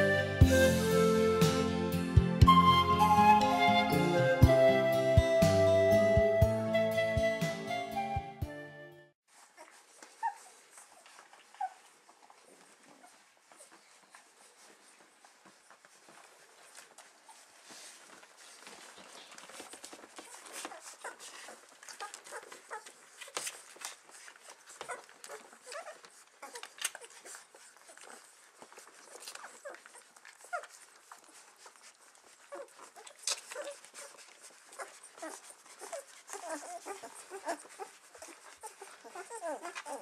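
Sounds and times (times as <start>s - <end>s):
puppies squeaking and whimpering: 9.5s - 14.7s, 16.0s - 40.0s.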